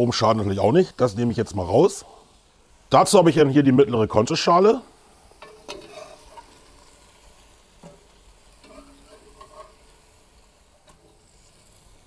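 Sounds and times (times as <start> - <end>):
meat sizzling in a pot: 0.0 - 12.0
metal skimmer clicking and scraping: 8.6 - 9.8.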